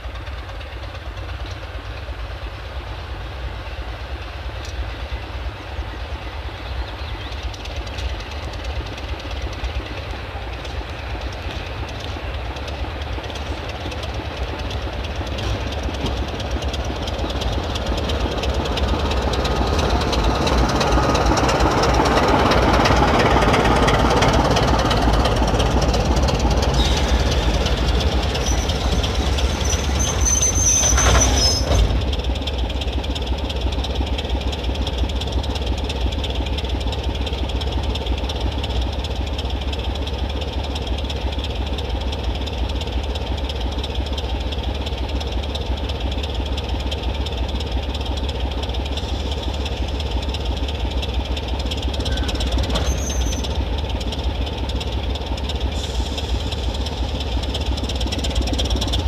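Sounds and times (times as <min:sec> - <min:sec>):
diesel locomotive engine running: 0:00.0 - 0:59.0
brief high squeal: 0:28.3 - 0:32.0, 0:52.0 - 0:53.6.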